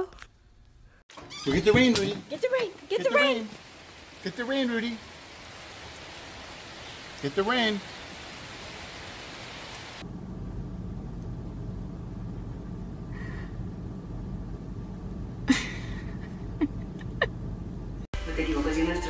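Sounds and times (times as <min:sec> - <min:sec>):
rain falling: 0:01.1 - 0:12.8.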